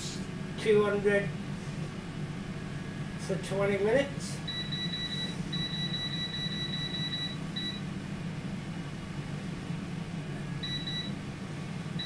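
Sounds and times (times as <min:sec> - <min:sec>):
oven fan humming: 0:00.0 - 0:12.0
electronic oven beeps: 0:04.4 - 0:07.9, 0:10.6 - 0:11.2.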